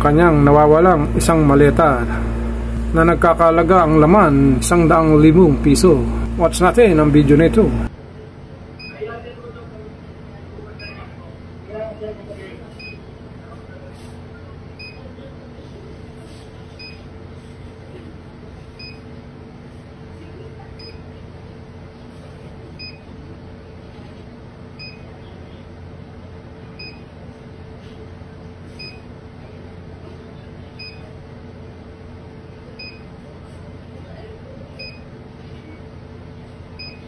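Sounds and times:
low hum and hiss: 0.0 - 12.6.

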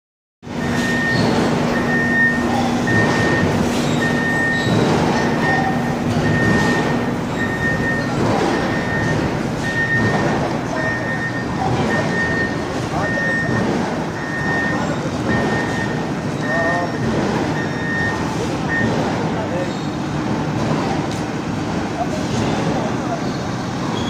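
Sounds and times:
forklift engine running: 0.4 - 24.0
back-up alarm beeping: 0.5 - 19.0.

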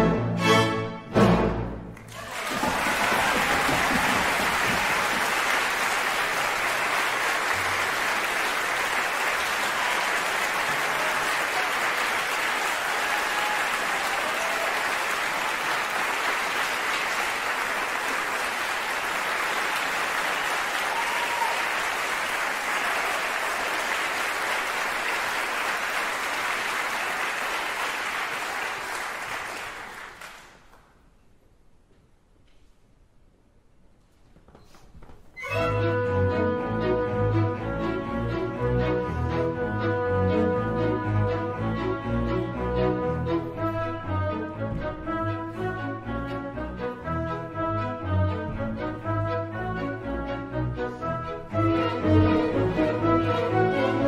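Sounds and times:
audience applause: 2.0 - 30.8.

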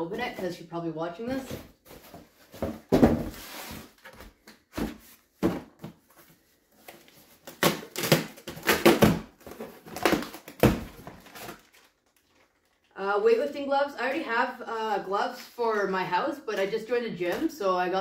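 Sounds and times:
cardboard box knocks and scrapes: 1.5 - 4.0, 4.7 - 6.0
cardboard tearing and rustling: 6.9 - 12.7.

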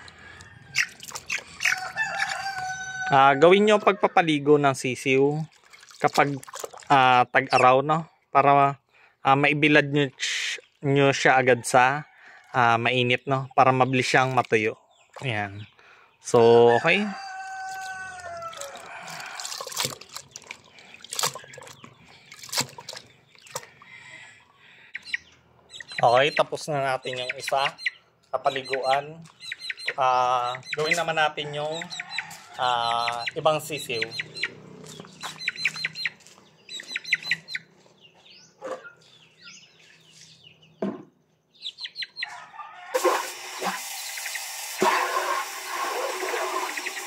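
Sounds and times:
chicks peeping: 0.1 - 3.1, 13.4 - 19.3, 20.2 - 42.7, 46.0 - 47.0
water sloshing in plastic basin: 0.9 - 2.4, 5.3 - 7.3, 14.0 - 15.6, 17.6 - 23.9
water rushing from tap into bucket: 18.6 - 21.8, 43.0 - 47.0.

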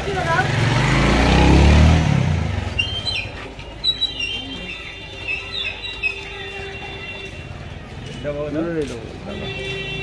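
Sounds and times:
motorcycle passing by: 0.0 - 2.8.

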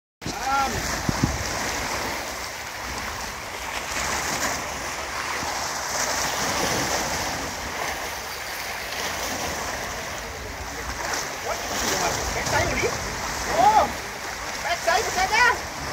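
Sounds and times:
wind rumbling on microphone: 0.2 - 8.1
choppy sea water washing: 0.2 - 15.9.

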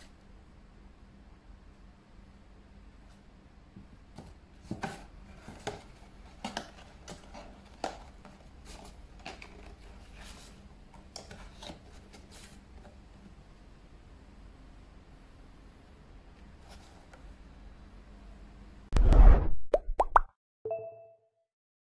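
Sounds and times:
cardboard rustling and creasing: 4.2 - 13.0.

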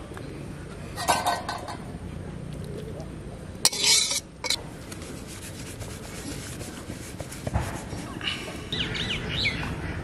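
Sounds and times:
metal plate scraping: 3.7 - 4.6.

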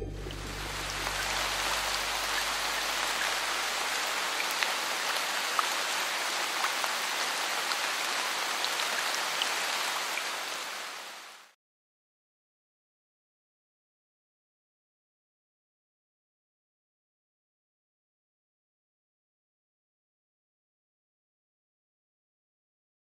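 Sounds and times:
steady rain on a pool: 0.3 - 11.6.

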